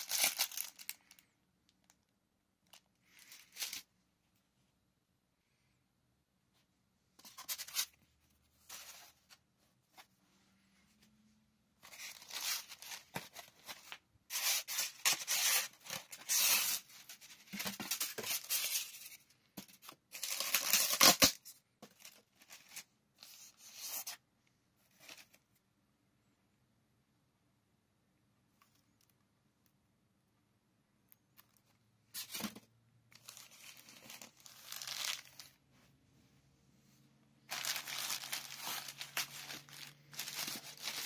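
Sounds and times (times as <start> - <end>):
plastic wrap crinkling: 0.0 - 1.2, 33.2 - 35.6, 37.5 - 41.0.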